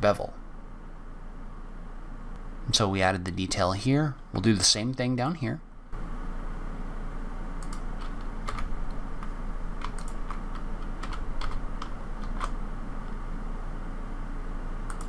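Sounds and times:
low hum: 0:00.0 - 0:15.0
mouse clicks: 0:07.6 - 0:08.2, 0:09.8 - 0:10.4
keyboard keys tapping: 0:07.6 - 0:12.6.

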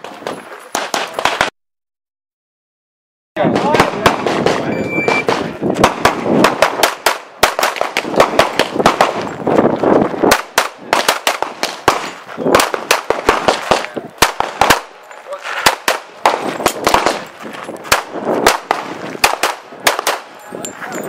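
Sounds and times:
pistol shots: 0:00.0 - 0:01.5, 0:03.4 - 0:09.3, 0:10.3 - 0:15.0, 0:15.6 - 0:17.3, 0:17.9 - 0:20.3.

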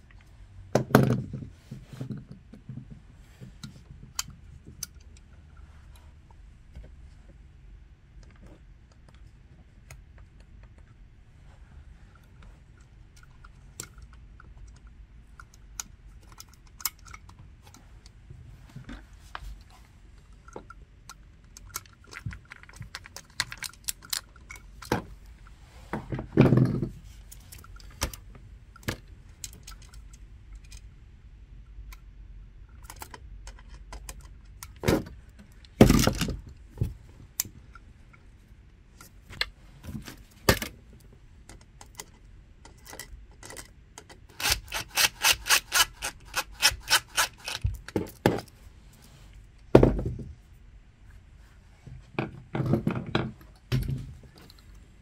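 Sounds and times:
small clicks and metallic rattles: 0:41.4 - 0:44.5.

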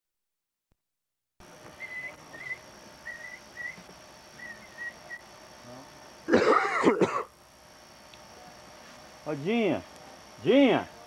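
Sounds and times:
person coughing: 0:06.3 - 0:07.3.

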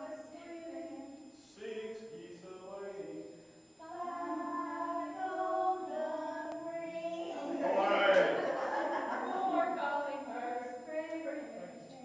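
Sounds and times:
group singing without instruments: 0:03.8 - 0:11.0.

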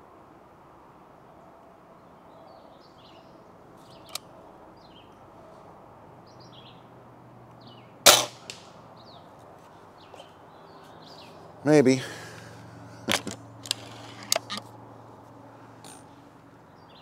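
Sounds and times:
birds chirping: 0:02.0 - 0:08.1, 0:08.7 - 0:17.0
air rifle shot crack: 0:08.0 - 0:08.8.

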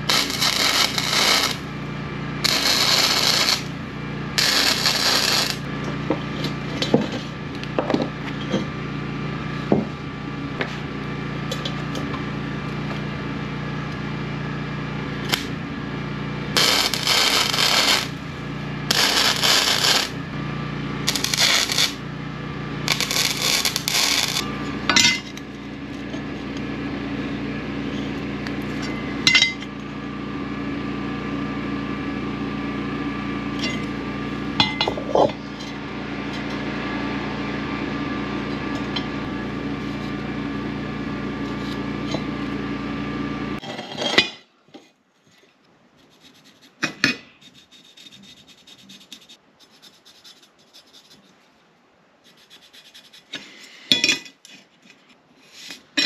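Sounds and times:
welding arc crackling: 0:00.0 - 0:01.8, 0:02.4 - 0:05.7, 0:15.2 - 0:15.6, 0:16.5 - 0:18.2, 0:18.8 - 0:20.3, 0:21.0 - 0:22.0, 0:22.8 - 0:25.2
steady electrical hum: 0:00.0 - 0:56.0.

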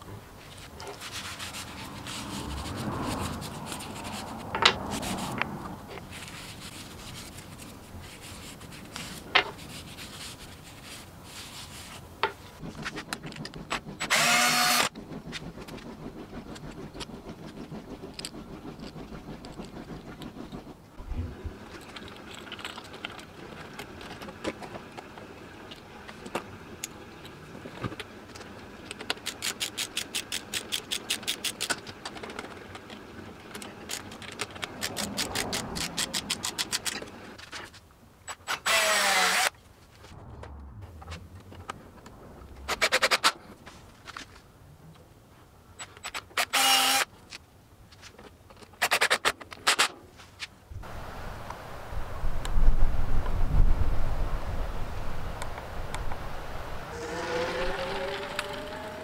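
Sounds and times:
fast runs of clicks: 0:12.6 - 0:20.9, 0:27.9 - 0:37.2
loud buzzing tone: 0:56.9 - 0:59.0.

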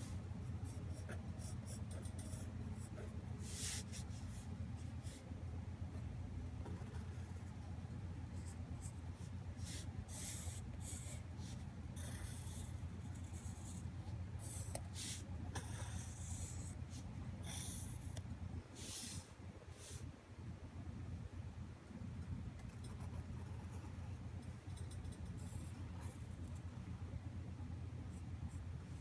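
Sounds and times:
low steady hum: 0:00.0 - 0:29.0
pencil scratching on paper: 0:00.6 - 0:04.5, 0:06.6 - 0:07.5, 0:08.4 - 0:18.1.

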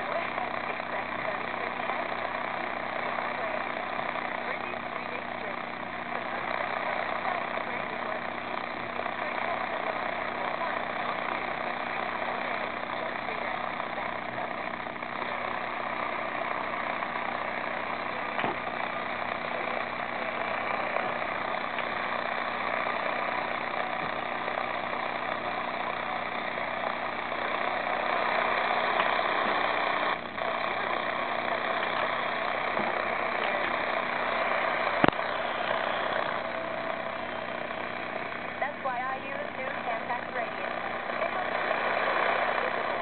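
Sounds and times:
low buzz: 0:00.0 - 0:43.0
tv static hiss: 0:00.0 - 0:43.0
faint clicks: 0:34.9 - 0:35.2.

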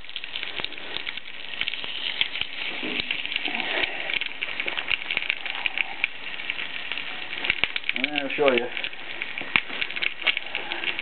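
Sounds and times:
campfire crackling: 0:00.0 - 0:11.0.

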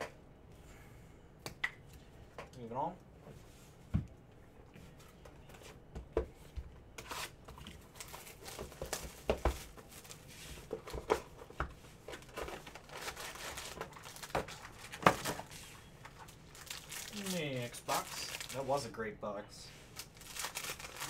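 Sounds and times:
cardboard rustling and tearing: 0:12.2 - 0:15.5, 0:20.0 - 0:21.0.

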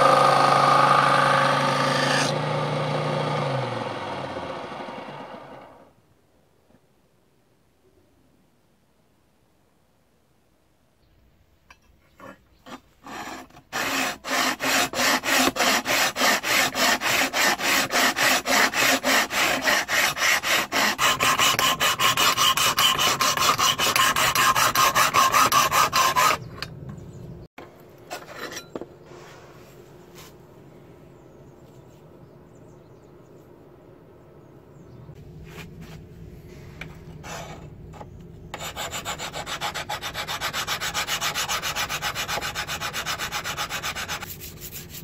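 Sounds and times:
file rasping on steel blade: 0:02.0 - 0:02.4, 0:12.2 - 0:26.5, 0:38.5 - 0:45.0.

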